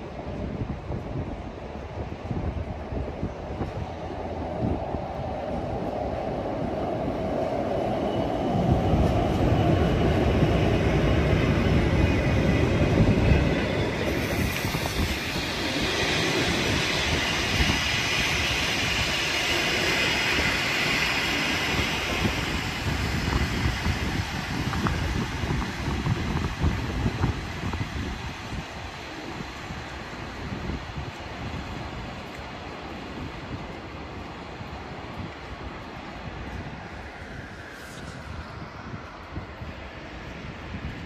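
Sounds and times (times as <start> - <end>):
train rumbling past: 0.0 - 41.0
train brakes squealing: 7.9 - 24.1.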